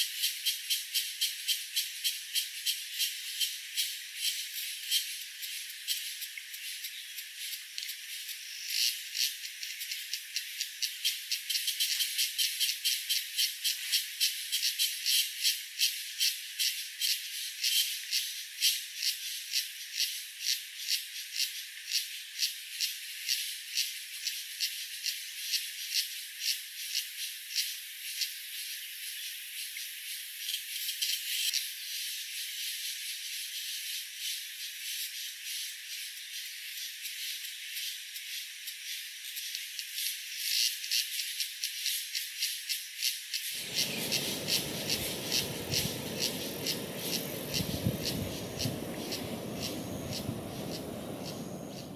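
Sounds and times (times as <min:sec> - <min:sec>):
insect rattling pulses: 0:43.5 - 0:51.9.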